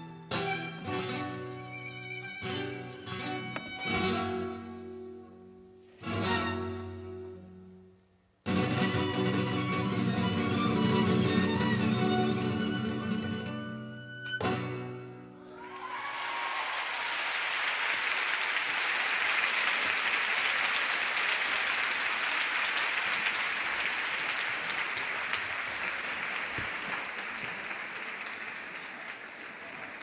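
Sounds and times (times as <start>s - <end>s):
audience applauding: 15.4s - 30.0s.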